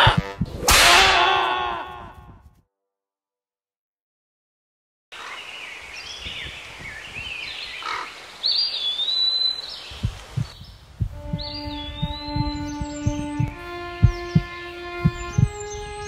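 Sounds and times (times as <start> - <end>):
birds chirping: 5.2 - 16.0.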